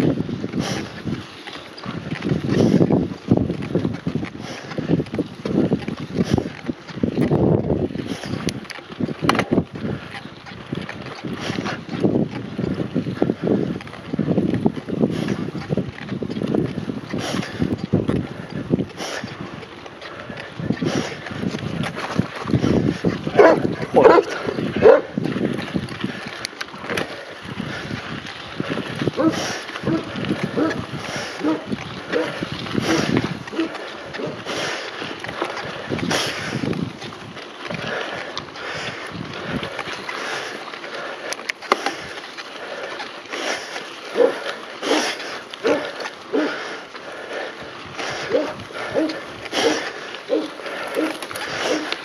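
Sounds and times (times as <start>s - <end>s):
bike tyres rumbling on dirt: 0.0s - 52.0s
wind buffeting microphone: 0.0s - 52.0s
dog barking: 23.4s - 25.1s, 29.2s - 30.8s, 31.4s - 31.6s, 44.2s - 44.4s, 45.6s - 45.8s, 48.3s - 51.1s.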